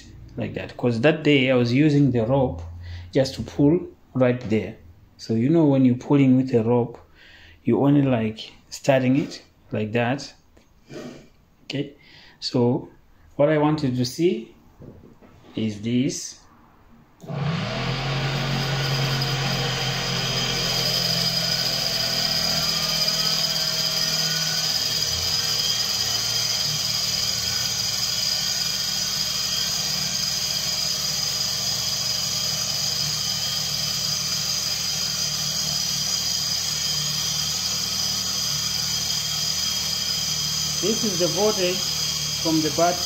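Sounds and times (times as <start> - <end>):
electric motor whine and hum: 17.2 - 43.0.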